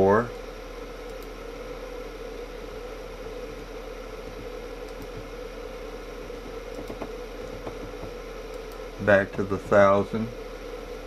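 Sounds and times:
electrical hum and hiss: 0.0 - 11.0.

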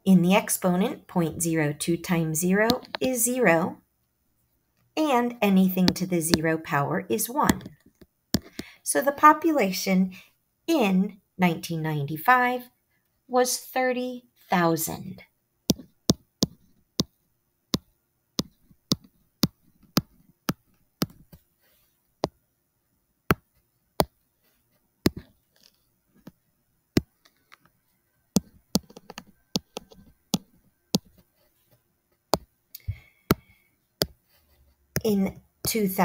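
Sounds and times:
stylus tapping tablet screen: 1.3 - 3.4, 5.1 - 6.8, 7.4 - 8.7, 15.7 - 17.2, 17.8 - 21.4, 23.3 - 24.2, 25.1 - 26.4, 27.0 - 27.7, 28.3 - 34.3, 34.9 - 36.0.

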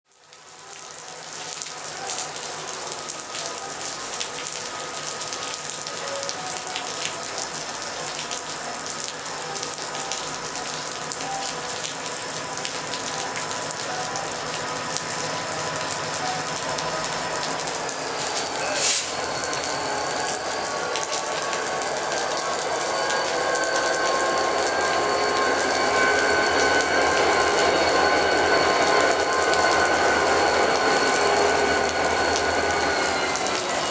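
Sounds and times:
steady rain: 0.1 - 33.9
diesel locomotives whining: 1.9 - 33.9.

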